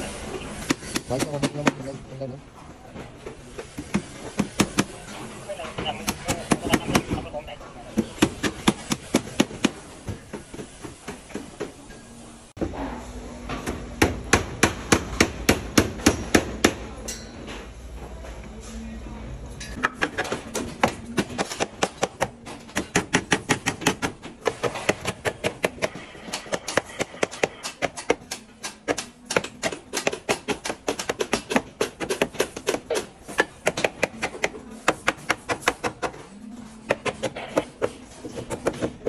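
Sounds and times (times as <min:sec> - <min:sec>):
hammer strikes on wood: 0:13.6 - 0:16.9, 0:19.8 - 0:36.2.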